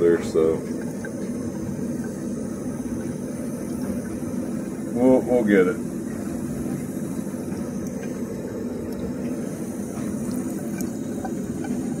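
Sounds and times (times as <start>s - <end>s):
water running into sink: 0.0s - 12.0s.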